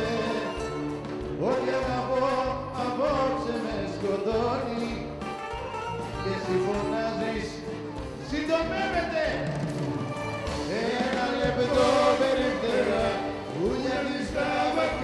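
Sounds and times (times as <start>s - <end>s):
live band playing: 0.0s - 15.0s.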